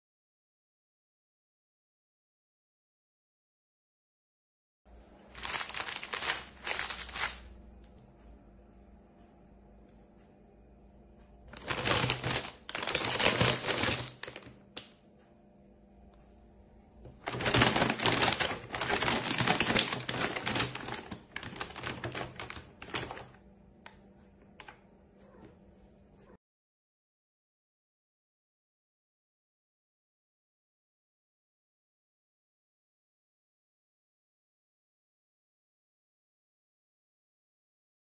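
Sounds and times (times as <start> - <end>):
plastic packet crinkling: 5.3 - 7.5, 11.5 - 14.9, 17.2 - 23.4
dry cat food rattling: 5.4 - 7.4, 11.5 - 14.5, 17.2 - 23.4.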